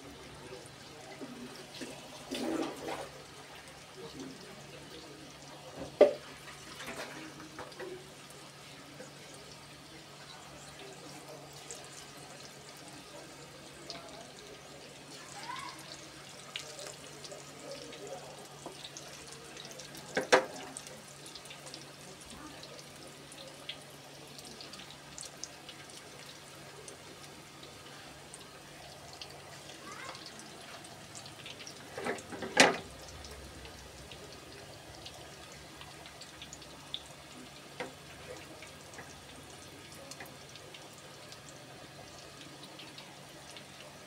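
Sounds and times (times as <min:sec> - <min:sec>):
deep-frying sizzle: 0:00.0 - 0:44.0
oil popping: 0:18.4 - 0:22.3, 0:31.0 - 0:41.5.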